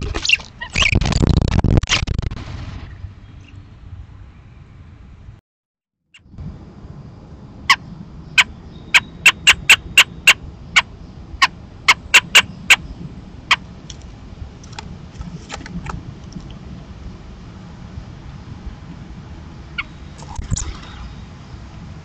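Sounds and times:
robin clucking calls: 7.7 - 13.6.

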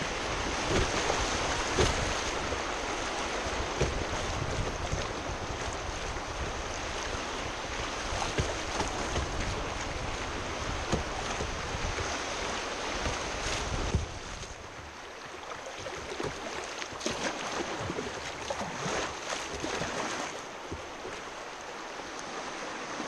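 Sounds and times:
sharp water splashes: 0.0 - 4.4, 15.4 - 21.3.

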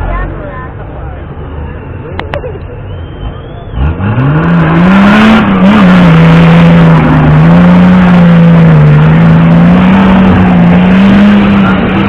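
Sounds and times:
suv engine revving hard: 2.9 - 12.0.

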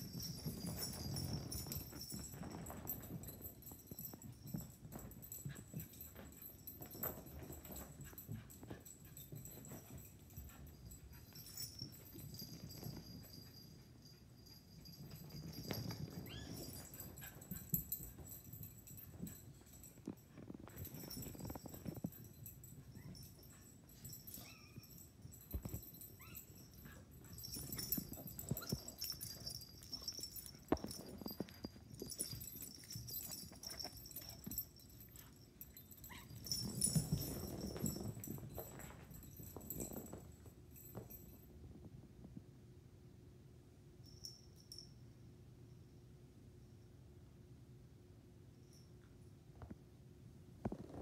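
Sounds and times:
paws scuffling and thumping: 0.0 - 41.4
dog whimpers and yips: 16.1 - 17.4, 24.2 - 27.1, 36.0 - 36.4
puppy whimpering and yipping: 24.4 - 25.0, 26.2 - 27.0.

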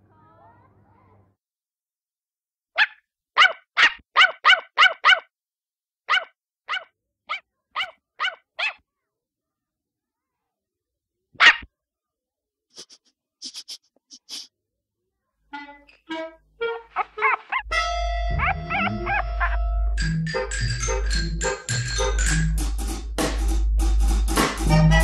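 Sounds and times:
small puppy yapping: 2.8 - 5.3, 6.1 - 8.8, 11.4 - 11.7, 17.0 - 17.7, 18.3 - 19.7.

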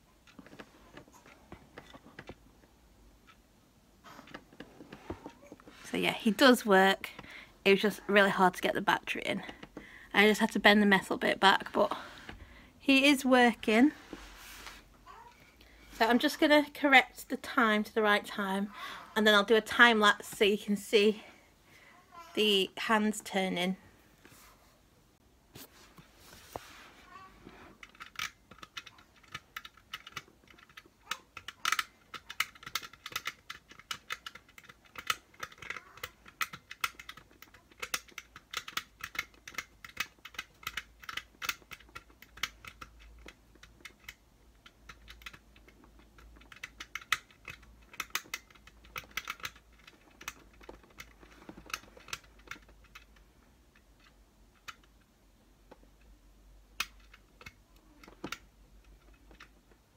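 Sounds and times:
handling plastic case: 0.0 - 3.4.

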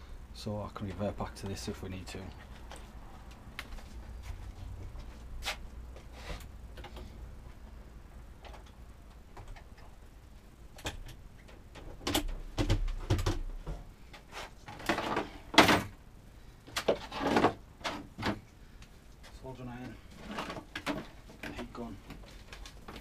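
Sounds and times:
rustles and scrapes: 0.8 - 7.8, 13.6 - 15.6, 16.7 - 18.4, 19.1 - 23.0.

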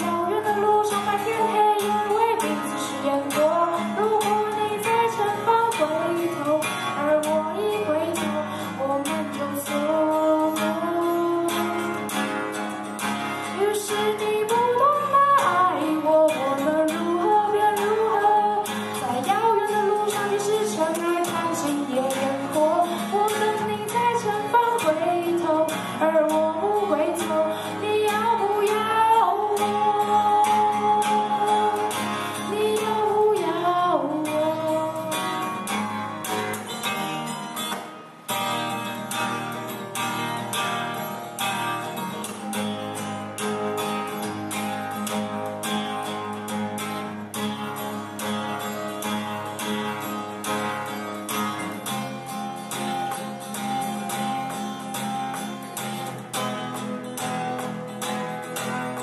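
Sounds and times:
woman singing into a microphone: 0.0 - 36.7
acoustic guitar strumming: 0.0 - 59.0.

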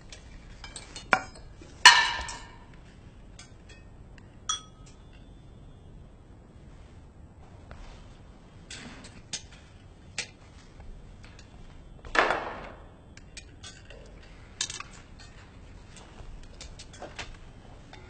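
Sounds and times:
dishes and cutlery clinking: 0.1 - 2.7, 3.4 - 5.3, 13.2 - 18.0
dishes clattering: 0.6 - 2.7.

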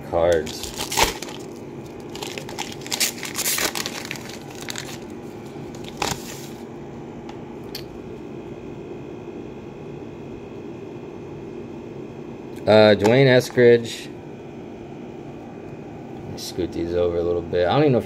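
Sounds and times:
plastic wrapper crinkling: 0.3 - 6.6.

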